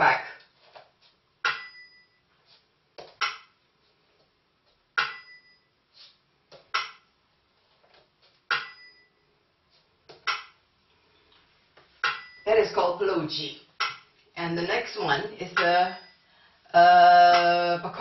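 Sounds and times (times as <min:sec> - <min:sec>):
bell-cymbals ringing: 0:01.5 - 0:02.2, 0:12.0 - 0:12.5.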